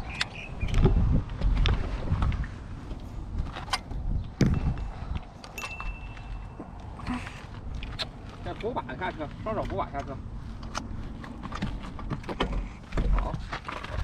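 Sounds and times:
wind rumbling on microphone: 0:00.0 - 0:14.0
light metallic rattles: 0:03.5 - 0:06.6.

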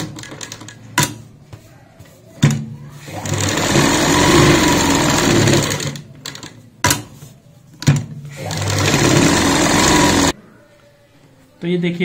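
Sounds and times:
sewing machine stitching: 0:03.0 - 0:06.4, 0:08.3 - 0:10.4.

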